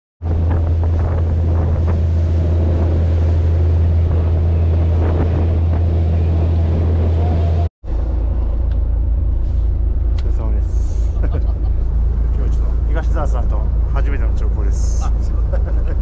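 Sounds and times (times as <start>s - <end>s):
wind buffeting microphone: 0.2s - 10.2s
boat engine drone: 0.2s - 16.0s
water rushing off hull: 0.2s - 16.0s.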